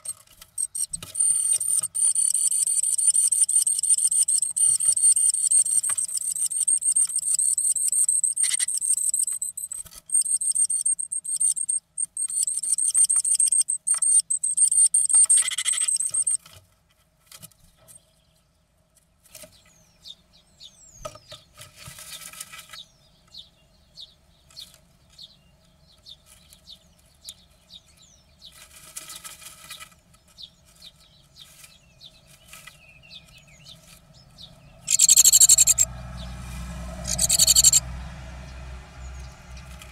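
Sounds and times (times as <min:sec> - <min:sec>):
bird scratching in nest: 0:00.0 - 0:14.2, 0:34.9 - 0:35.9, 0:36.5 - 0:37.8
bird trilling call: 0:00.0 - 0:16.4, 0:34.8 - 0:35.9, 0:37.0 - 0:37.8
rustling in nest: 0:28.4 - 0:35.9.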